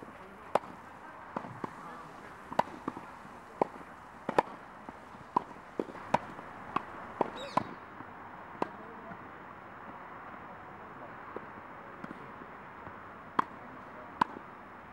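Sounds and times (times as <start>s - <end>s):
tennis ball struck with rackets: 0.0s - 7.8s, 8.6s - 8.8s, 11.3s - 14.5s.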